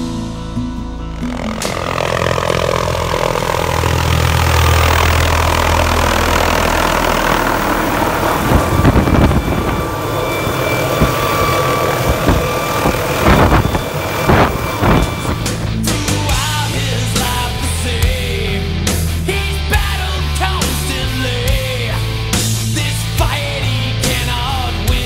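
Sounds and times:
helicopter engine and rotor: 0.0s - 25.0s
wind buffeting microphone: 1.3s - 16.0s.

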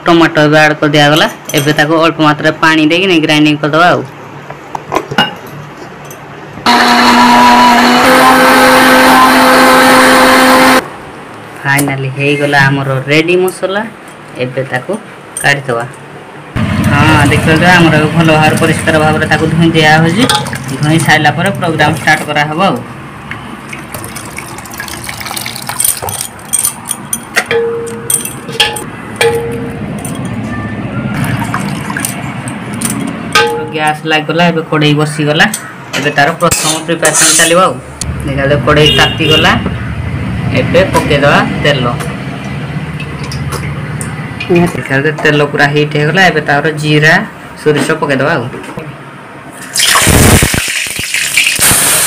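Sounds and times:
mixer grinder whirring: 6.7s - 10.8s
clinks against metal pot: 20.2s - 20.7s, 25.6s - 30.4s
water sloshing and dripping: 20.3s - 21.2s, 23.2s - 26.5s, 31.2s - 32.6s.

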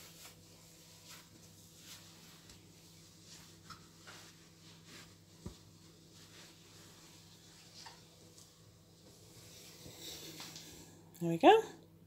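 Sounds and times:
towel rubbing over hands: 0.0s - 10.8s
low steady hum: 0.0s - 12.0s.

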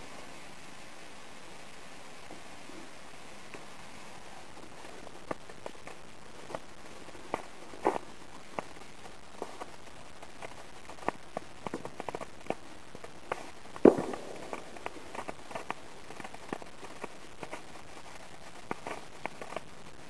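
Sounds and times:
fireworks sparks sputtering and crackling: 0.0s - 20.0s
loud firework pop: 13.8s - 14.7s.

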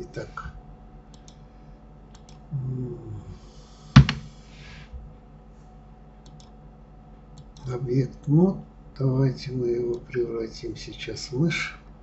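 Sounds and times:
low hum of a voice: 0.0s - 0.7s, 2.3s - 4.1s, 7.5s - 12.0s
computer keyboard and mouse clicks: 1.1s - 1.4s, 2.1s - 2.4s, 6.2s - 6.6s.

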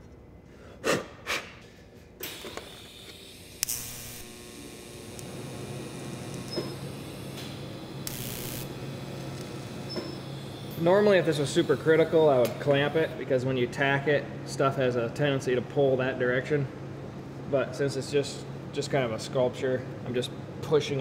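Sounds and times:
welding arc hissing: 2.2s - 13.1s.

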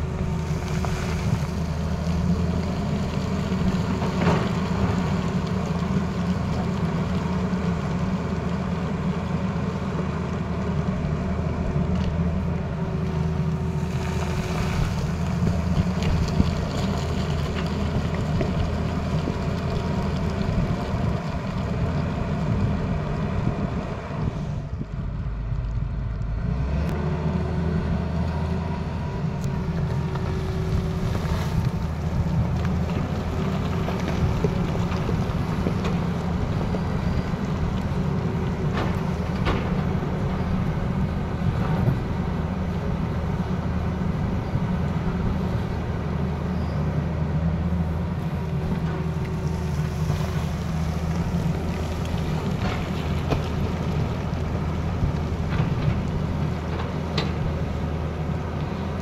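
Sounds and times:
excavator diesel engine rumbling: 0.0s - 59.0s.

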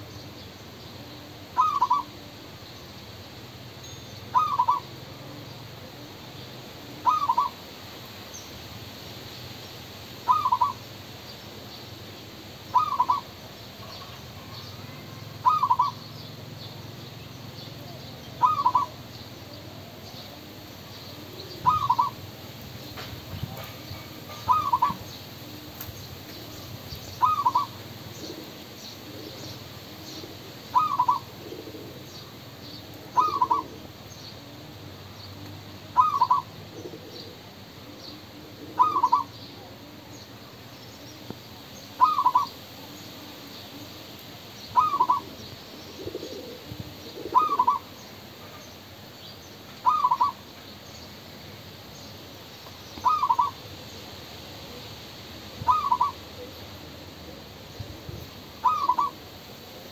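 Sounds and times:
dove cooing: 1.0s - 2.6s, 4.3s - 7.7s, 10.2s - 10.8s, 12.6s - 16.4s, 17.6s - 40.1s, 41.9s - 43.9s, 44.7s - 48.5s, 49.8s - 50.4s, 53.0s - 53.6s, 55.6s - 59.9s.

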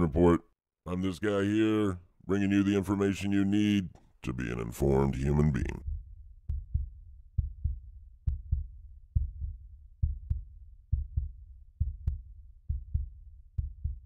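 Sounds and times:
heartbeat thumps: 5.6s - 14.0s.

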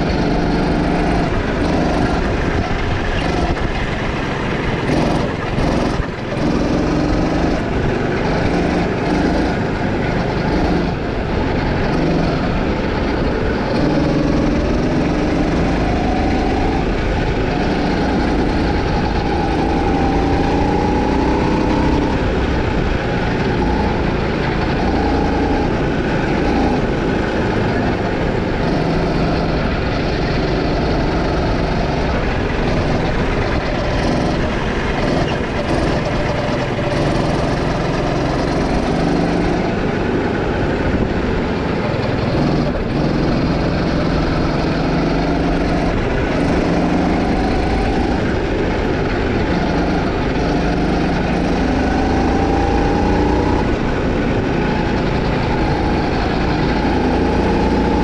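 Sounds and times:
go-kart engine running hard: 0.0s - 58.0s
steady rush of noise: 0.0s - 58.0s.

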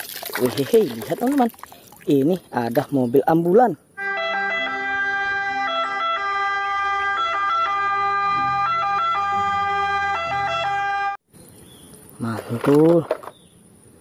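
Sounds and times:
two-tone ambulance siren: 4.0s - 11.2s.

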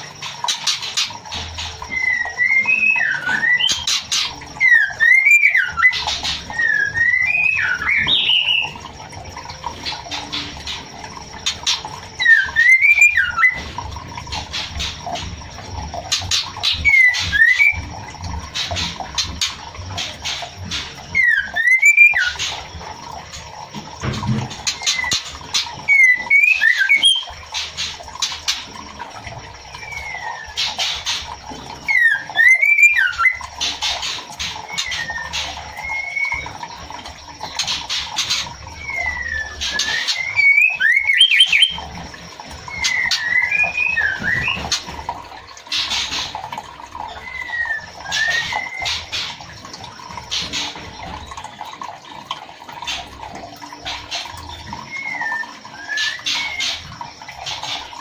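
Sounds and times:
bird harsh raspy notes: 37.6s - 41.9s.

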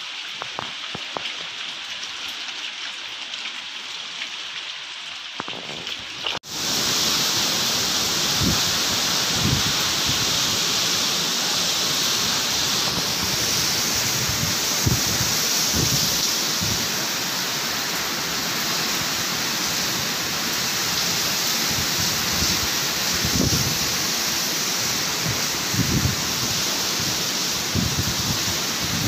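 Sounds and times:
heavy rain: 0.0s - 29.0s
strong wind: 6.4s - 17.1s, 20.7s - 29.0s
wind gusts buffeting microphone: 8.2s - 10.9s, 12.2s - 16.9s, 21.7s - 24.0s, 25.1s - 29.0s.

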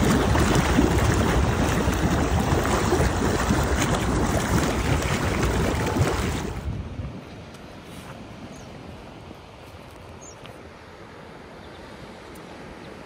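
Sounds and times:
wind buffeting microphone: 0.0s - 7.5s
churning water rushing: 0.0s - 9.6s.

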